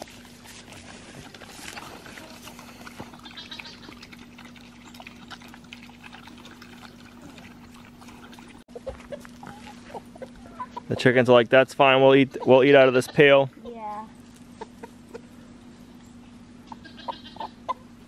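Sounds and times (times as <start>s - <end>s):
pigs chewing and crunching: 0.0s - 13.3s
faint steady hum: 0.0s - 18.0s.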